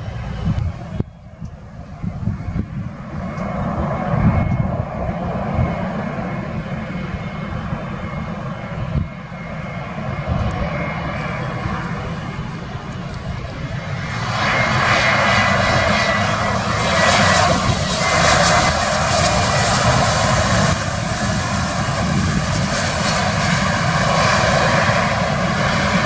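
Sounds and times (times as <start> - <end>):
jet engines rumble and whine: 0.0 - 26.0.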